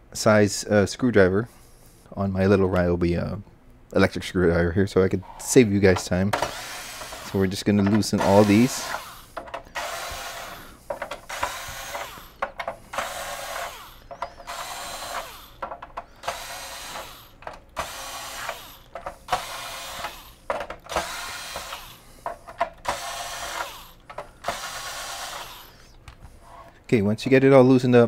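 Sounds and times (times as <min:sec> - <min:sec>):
cordless screwdriver running: 0:06.4 - 0:22.0, 0:22.8 - 0:25.9.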